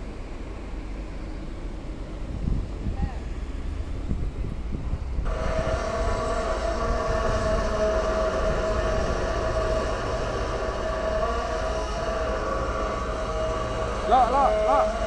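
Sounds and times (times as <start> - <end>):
diesel engine rumbling: 0.0 - 15.0
hoist winch whining: 5.3 - 15.0.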